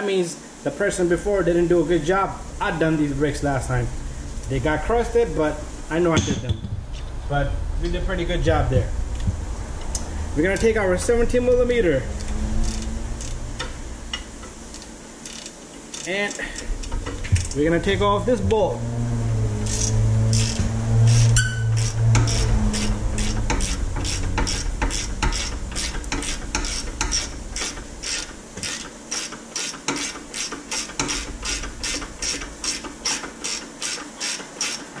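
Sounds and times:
steady low hum: 0.4 - 33.6
ratchet wrench clicking: 12.2 - 17.6, 19.6 - 34.9.

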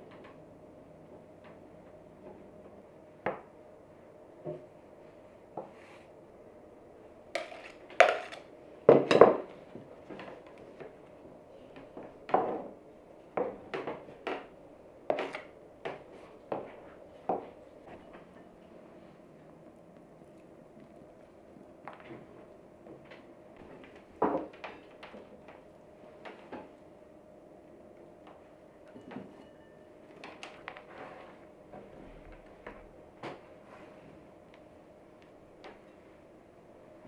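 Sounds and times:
spatula scraping ceramic bowl: 7.4 - 8.4.

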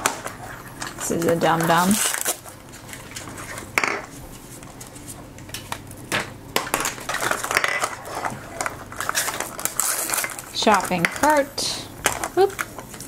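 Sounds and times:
foil wrapper crinkling: 0.2 - 6.0, 6.8 - 13.0.

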